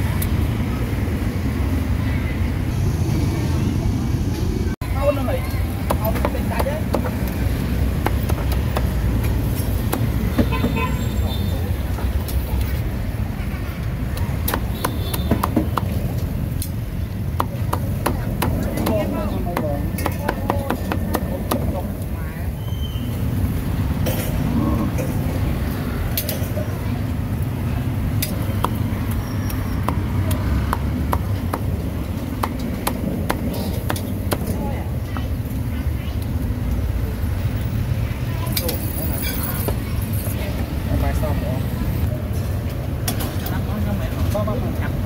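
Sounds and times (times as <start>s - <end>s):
low rumble of traffic: 0.0s - 45.0s
cleaver chopping on wooden block: 29.8s - 31.7s, 32.4s - 34.5s.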